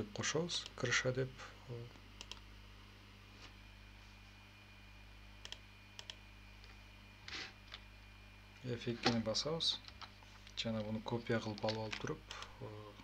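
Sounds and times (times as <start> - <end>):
low electrical hum: 0.0 - 13.0
computer mouse clicking: 2.2 - 2.4, 5.4 - 6.2.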